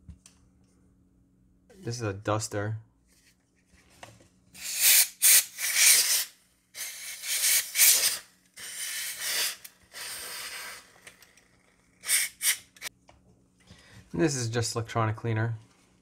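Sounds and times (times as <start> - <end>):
compressed air duster hissing: 4.6 - 11.0, 12.0 - 12.9.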